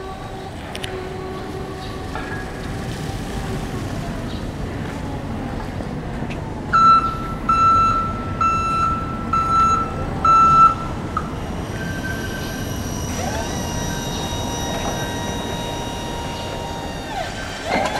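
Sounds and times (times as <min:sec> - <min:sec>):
steady background noise: 0:00.0 - 0:17.9
forklift reverse alarm beeping: 0:06.7 - 0:17.9.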